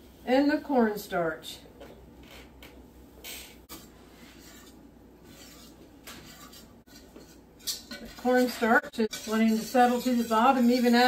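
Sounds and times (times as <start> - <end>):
whisk scraping metal pot: 3.7 - 11.0.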